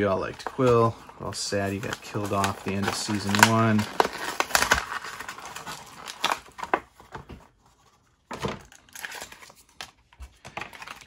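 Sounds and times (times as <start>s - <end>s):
plastic blister crinkling and clicking: 0.1s - 7.4s.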